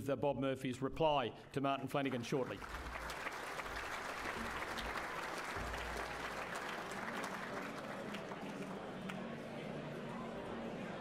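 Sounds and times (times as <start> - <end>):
audience applauding: 2.1 - 9.3.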